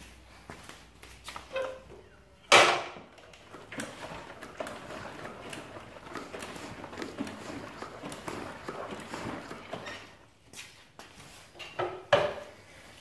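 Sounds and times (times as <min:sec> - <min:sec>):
suspension knocks and creaks: 0:02.5 - 0:10.2.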